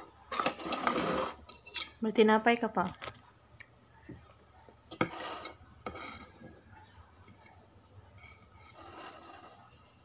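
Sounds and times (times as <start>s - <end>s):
fork scraping: 0.3s - 2.0s, 4.9s - 6.5s, 7.2s - 9.9s.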